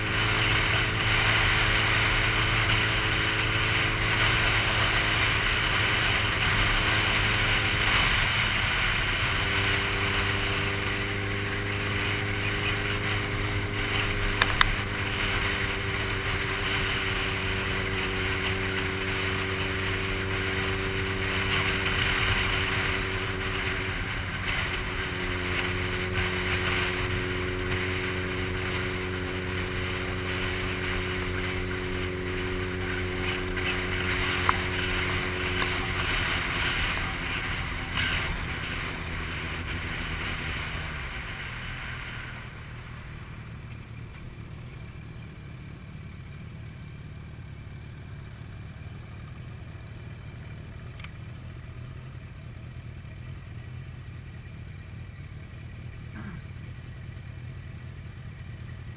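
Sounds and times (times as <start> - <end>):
wind rushing over microphone: 0.0 - 42.8
motorcycle engine cruising: 0.0 - 58.9.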